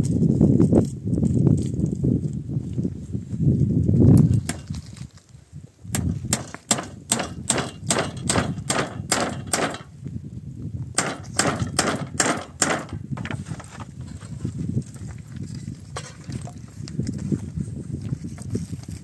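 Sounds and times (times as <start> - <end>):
hammer nailing wood: 6.0 - 9.9, 11.0 - 13.4.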